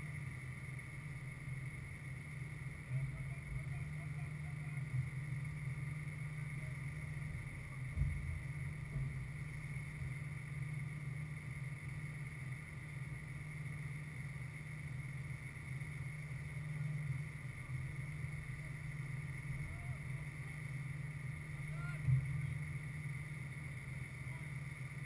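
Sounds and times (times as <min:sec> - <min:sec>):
faint high whine: 0:00.0 - 0:25.0
steady low rumble: 0:00.0 - 0:25.0
dull thump: 0:07.9 - 0:09.3.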